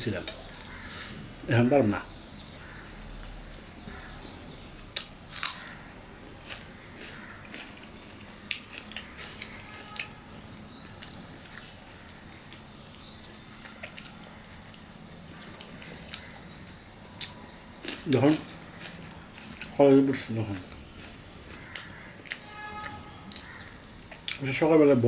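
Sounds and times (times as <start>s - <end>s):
chewing and mouth smacks: 6.4s - 10.2s, 13.6s - 14.8s.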